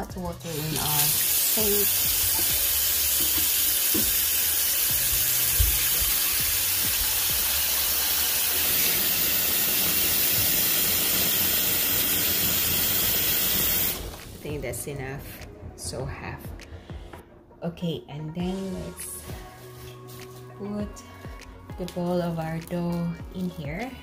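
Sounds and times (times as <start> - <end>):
tap water running into sink: 0.1 - 14.5.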